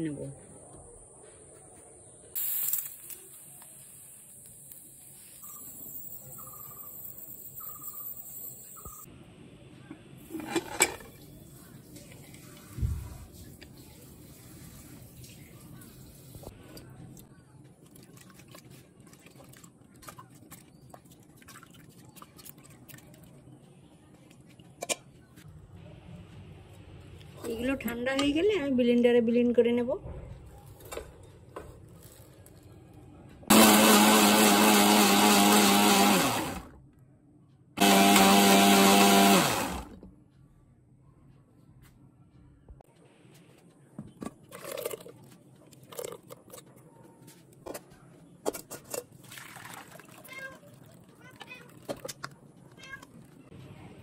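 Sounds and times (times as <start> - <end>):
metal cookware clattering: 10.3 - 11.2
liquid sloshing: 17.8 - 23.5, 44.4 - 46.7, 48.6 - 52.4
blender motor hum: 33.5 - 36.7, 37.8 - 40.0.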